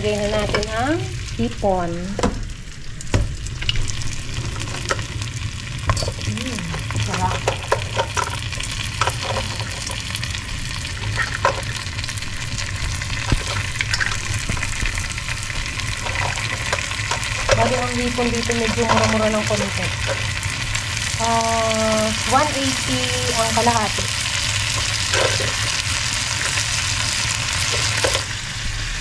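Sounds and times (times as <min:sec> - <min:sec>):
shrimp sizzling in a pan: 0:00.0 - 0:29.0
utensil scraping a pan: 0:07.0 - 0:10.1, 0:15.6 - 0:20.6, 0:23.6 - 0:28.3.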